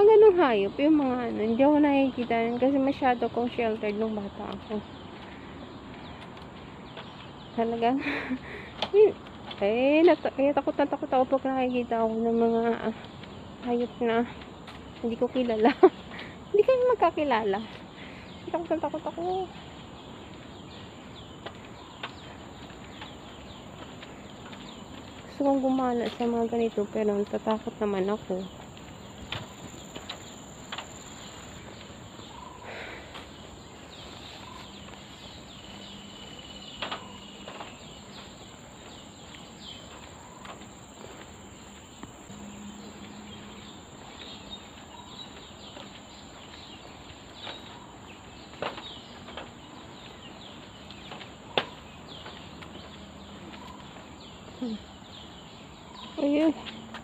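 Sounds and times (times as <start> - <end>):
bird chirps: 0.0 - 57.0
high-pitched insect drone: 42.2 - 44.3.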